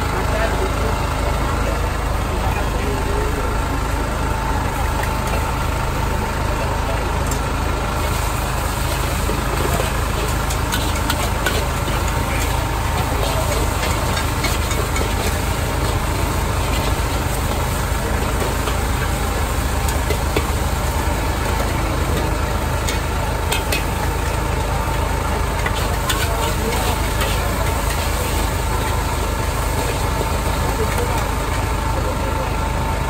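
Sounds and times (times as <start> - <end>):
wok burner roaring: 0.0 - 33.0
metal spatula scraping wok: 8.1 - 24.6, 25.5 - 31.0.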